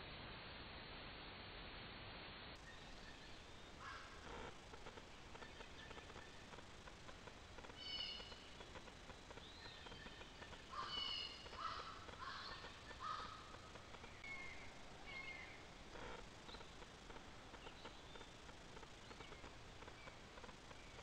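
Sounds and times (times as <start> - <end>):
harsh caw-like bird calls: 3.8 - 4.6, 7.8 - 8.5, 10.6 - 13.9.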